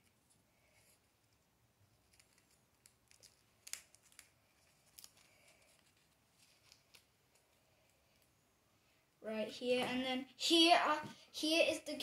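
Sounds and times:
paper and plastic crinkling: 2.0s - 7.6s.

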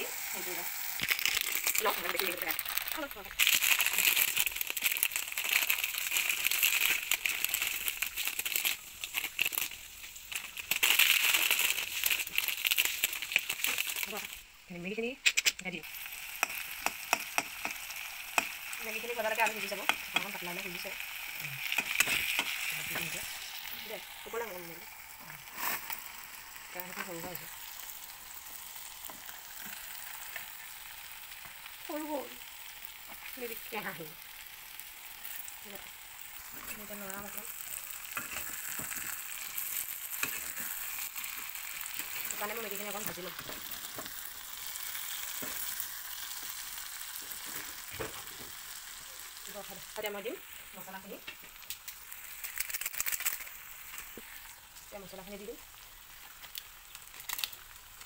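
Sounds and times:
vegetables sizzling in a pan: 0.0s - 58.0s
plastic wrapper crinkling: 0.8s - 14.4s, 33.0s - 58.0s.

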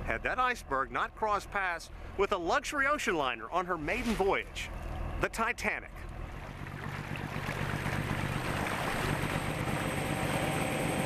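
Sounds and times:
boat engine hum: 0.0s - 11.0s
water rushing in wake: 6.0s - 11.0s.

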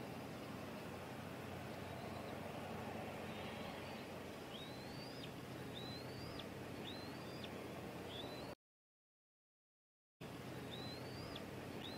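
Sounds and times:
bird whistled calls: 3.8s - 8.6s, 10.7s - 11.9s.

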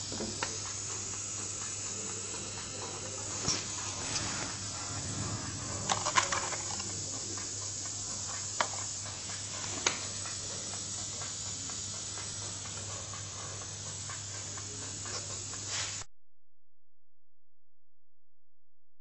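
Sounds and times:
low hum: 4.0s - 6.5s.

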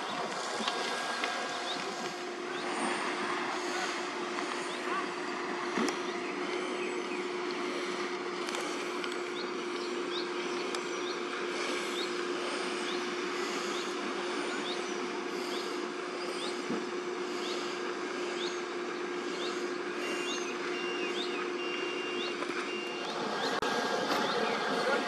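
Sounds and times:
fire engine running: 0.0s - 25.0s
reversing beeper: 18.3s - 25.0s.

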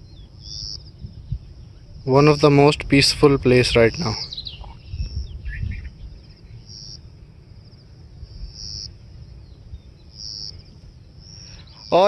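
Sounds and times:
bird chirps: 0.0s - 2.0s, 3.8s - 7.1s, 8.2s - 12.0s
insects trilling: 0.0s - 12.0s.

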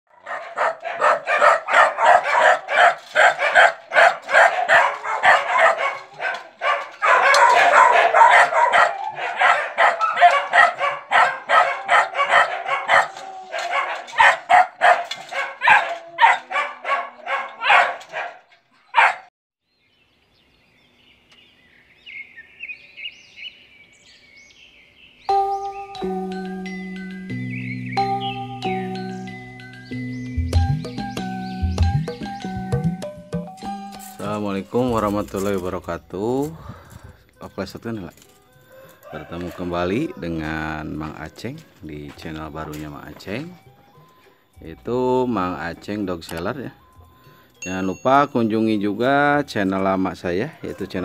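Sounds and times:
dog barking: 0.1s - 19.3s, 50.5s - 51.0s
chiming jingle: 25.3s - 35.8s, 43.4s - 49.4s.

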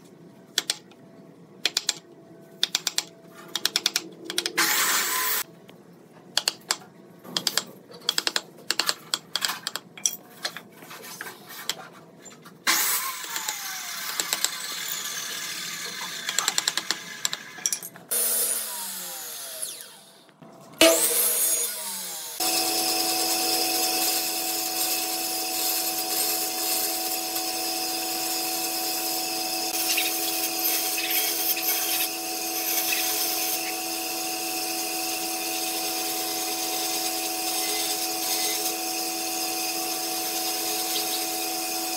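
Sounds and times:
miter saw cutting and spinning down: 12.7s - 16.3s, 18.1s - 20.2s, 20.8s - 34.1s
band saw cutting wood: 20.8s - 41.9s.

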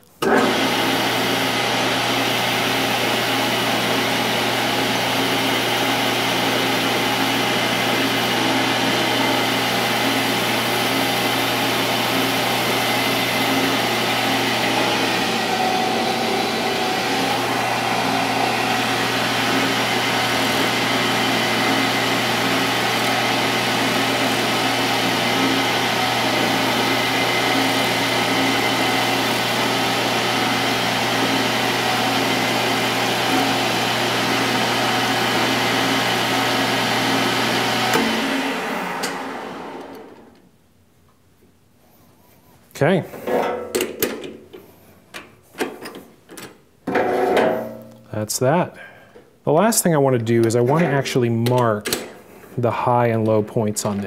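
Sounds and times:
metal lathe running: 0.2s - 39.2s.

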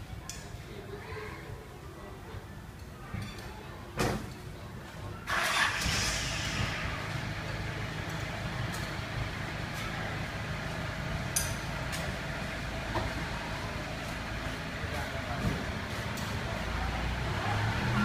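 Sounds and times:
engine low rumble: 5.3s - 18.0s.

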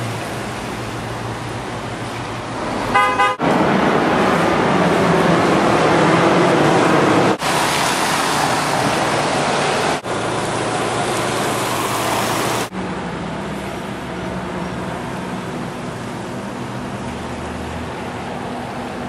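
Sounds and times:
tyres hissing on wet asphalt: 7.4s - 12.7s.

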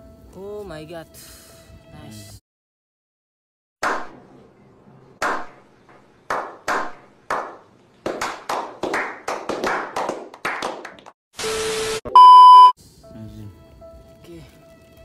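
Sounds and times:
men clapping: 6.3s - 11.2s
loud steady beep: 11.4s - 12.8s.

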